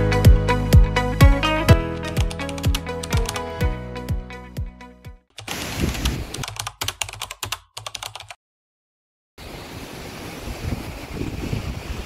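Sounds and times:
keyboard typing clicks: 2.1 - 3.5, 6.4 - 8.4
wind noise on microphone: 5.6 - 6.5, 10.0 - 12.0.

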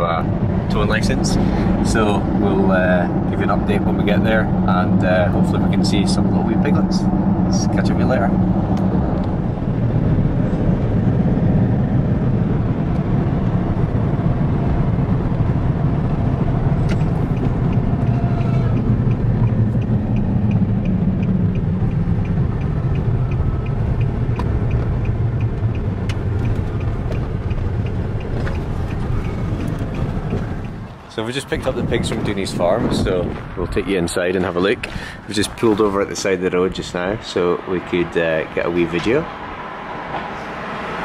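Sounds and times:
car engine and tyre rumble: 0.0 - 41.0
light regular ticking: 16.0 - 30.9.

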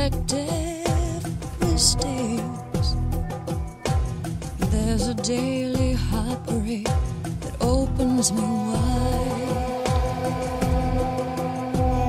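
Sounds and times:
bass and drums: 0.0 - 12.0
person singing long notes: 0.6 - 4.0, 7.7 - 12.0.

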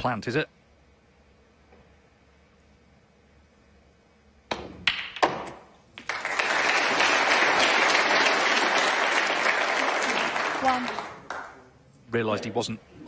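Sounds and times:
crowd applauding: 6.0 - 11.6.

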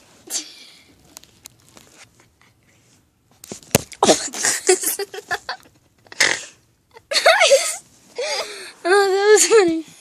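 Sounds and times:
rustling and crackling: 0.9 - 4.0.

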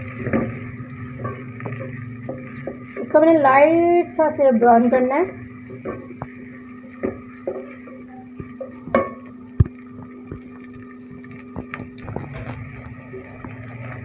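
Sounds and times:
onions sizzling in oil: 0.0 - 14.0
steady low hum: 0.0 - 14.0
wooden spoon knocking on pot: 5.7 - 10.5.

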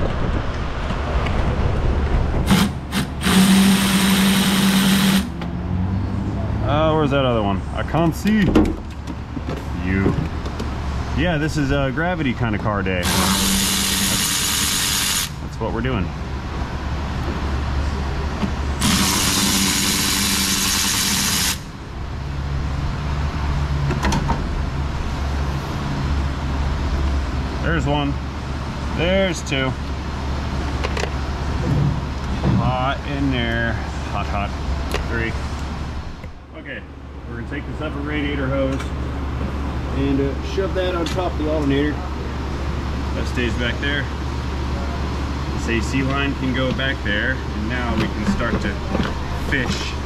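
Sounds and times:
fan hum: 0.0 - 50.0
electric ratchet whirring: 2.5 - 5.4, 13.0 - 15.4, 18.8 - 21.7
hiss of exhaust air: 13.1 - 15.4.

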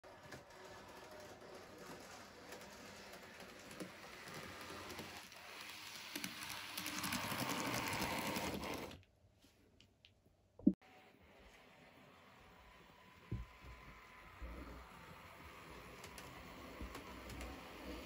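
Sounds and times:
wheels clicking on rails: 0.0 - 8.9, 15.3 - 18.0
model train motor whirring: 0.1 - 9.0, 14.0 - 18.0.

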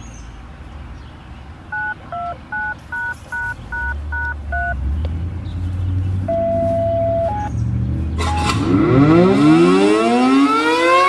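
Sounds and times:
touch-tone beeps: 1.8 - 4.8, 6.3 - 7.5.

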